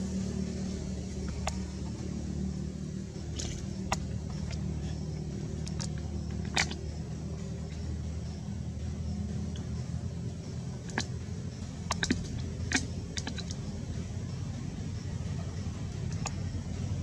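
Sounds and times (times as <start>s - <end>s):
motor humming: 0.0s - 17.0s.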